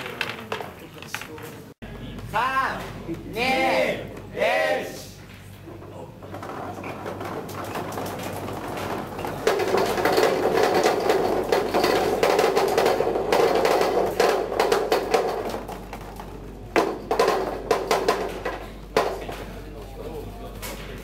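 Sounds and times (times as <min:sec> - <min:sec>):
ball rolling down a chute: 0:05.7 - 0:18.7
sharp knocks: 0:06.3 - 0:19.5.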